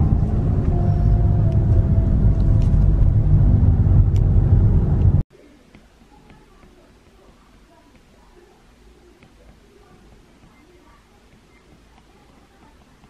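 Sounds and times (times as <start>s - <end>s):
road and engine rumble in car: 0.0s - 5.2s.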